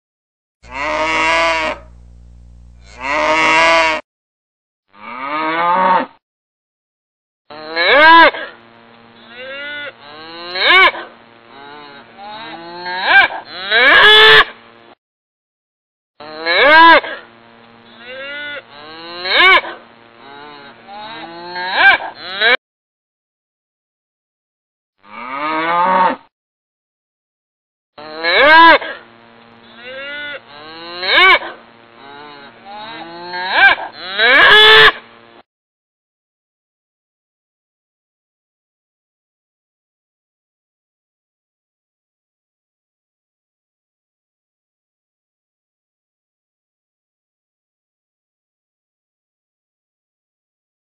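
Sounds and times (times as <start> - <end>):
cattle mooing: 0.6 - 2.1, 2.7 - 4.0, 20.2 - 22.6, 32.0 - 35.0.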